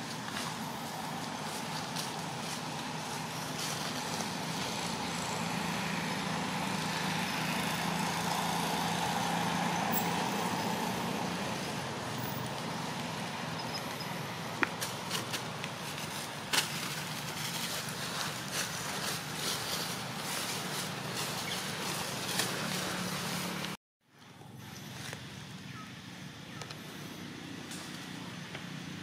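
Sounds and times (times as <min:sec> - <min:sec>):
vehicle passing: 0:02.2 - 0:16.3, 0:16.9 - 0:23.8.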